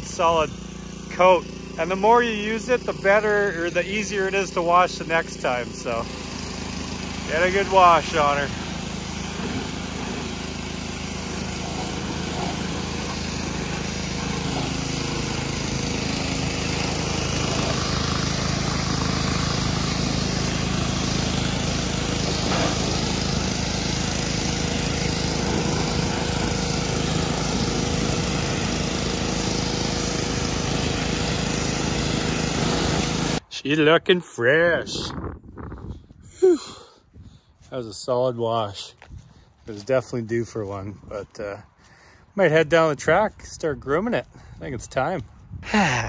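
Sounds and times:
high-pressure water jet hissing: 0.0 - 33.4
pressure washer engine humming: 0.0 - 33.5.

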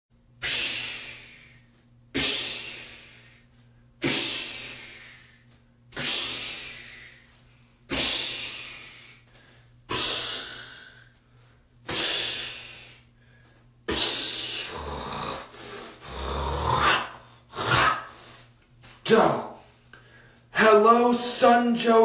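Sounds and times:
man hissing: 0.4 - 3.4, 4.0 - 7.3, 7.9 - 9.2, 9.9 - 11.2, 11.8 - 13.1, 13.9 - 18.4
man growling: 13.9 - 18.2.

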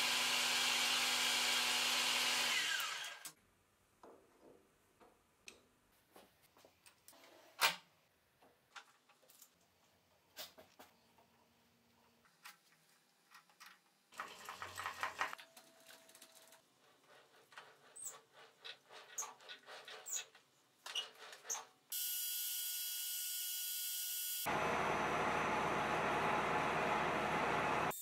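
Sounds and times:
metal lathe running: 24.5 - 27.9.

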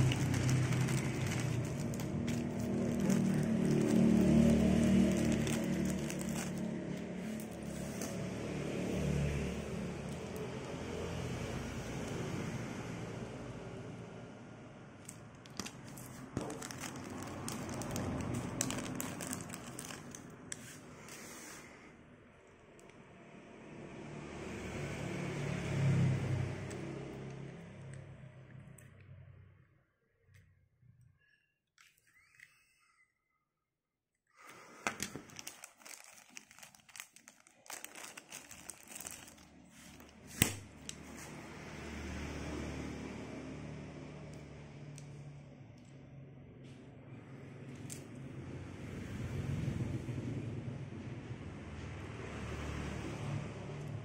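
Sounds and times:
plastic bag crinkling: 0.0 - 8.2, 15.4 - 20.6, 34.6 - 41.0.

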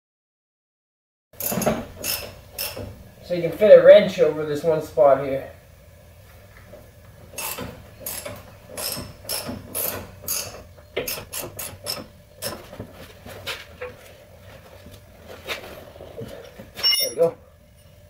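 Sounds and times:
ratchet wrench clicking: 1.4 - 2.8, 7.4 - 12.0.

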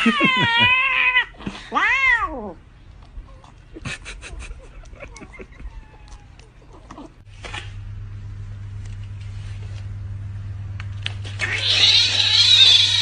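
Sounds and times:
cat meowing: 0.0 - 2.6, 5.6 - 7.1
steady low hum: 2.3 - 13.0.

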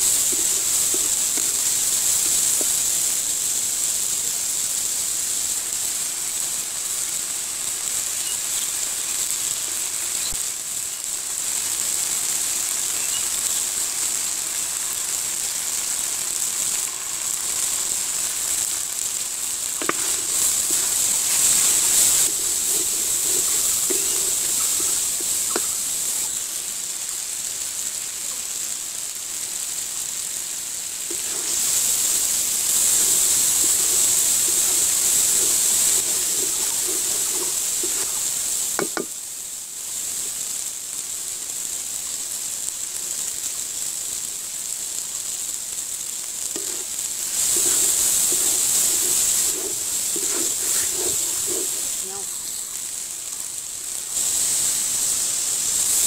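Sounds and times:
wooden spatula scraping a pan: 0.0 - 2.8, 19.8 - 26.2, 31.1 - 39.1, 46.6 - 52.5
onions sizzling in hot oil: 0.0 - 56.0.

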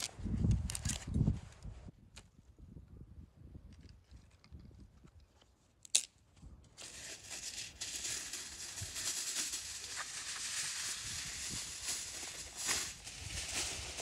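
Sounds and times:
aluminium foil crinkling: 6.8 - 14.0.

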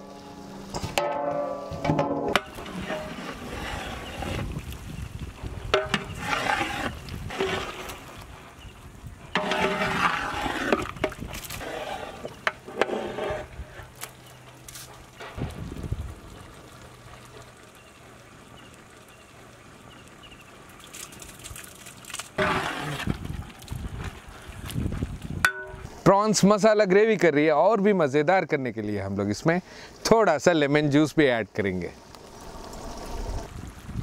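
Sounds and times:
ladle stirring curry in metal pot: 9.4 - 13.5.

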